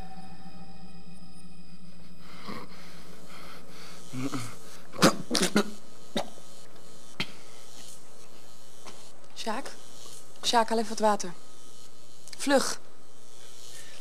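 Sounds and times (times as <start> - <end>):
steady hiss: 1.9 - 14.0
man coughing and choking: 4.1 - 6.4.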